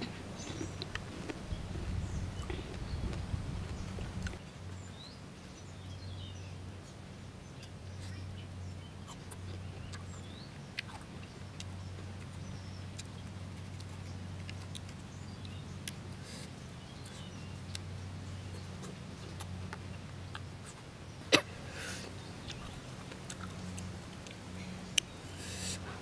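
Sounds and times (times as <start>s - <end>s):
birds chirping: 0.0s - 26.0s
steady low hum: 0.0s - 26.0s
crisp clicks of slicing and chewing: 0.4s - 4.4s, 9.1s - 16.0s.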